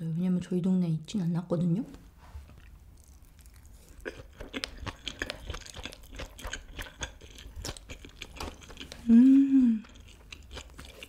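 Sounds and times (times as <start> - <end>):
close chewing with wet clicks: 2.5 - 9.1, 9.8 - 11.0.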